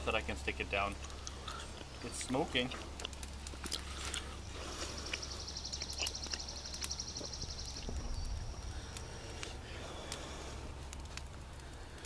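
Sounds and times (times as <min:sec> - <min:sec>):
wood fire crackling: 0:00.0 - 0:12.0
bird singing fast trill: 0:04.9 - 0:08.9.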